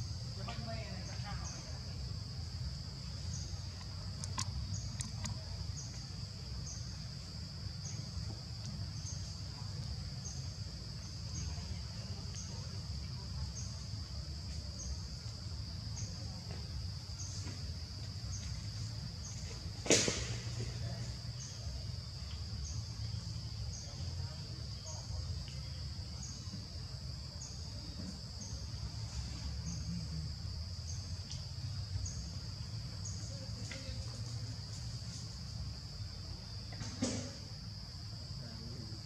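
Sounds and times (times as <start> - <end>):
high insect drone: 0.0 - 39.0
short insect chirp: 0.0 - 39.0.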